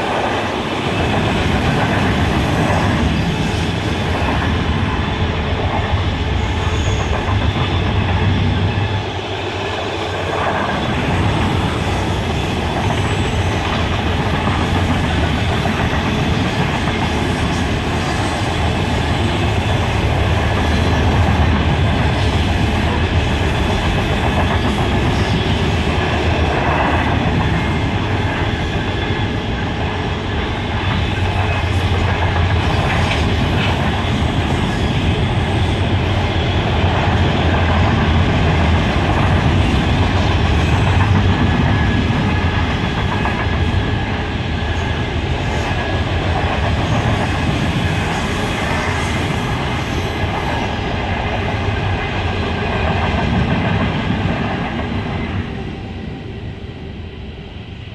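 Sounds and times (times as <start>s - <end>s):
train wheels clattering on rails: 0.0s - 56.0s.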